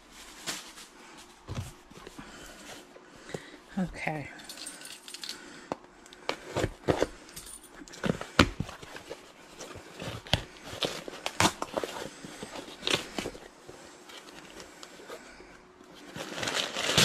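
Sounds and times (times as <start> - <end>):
packaging rustling: 7.8 - 15.2, 15.9 - 17.0.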